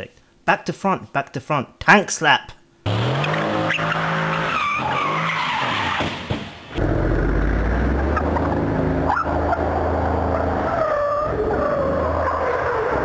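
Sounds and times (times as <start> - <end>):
tyres squealing: 2.9 - 6.2
car engine revving: 2.9 - 13.0.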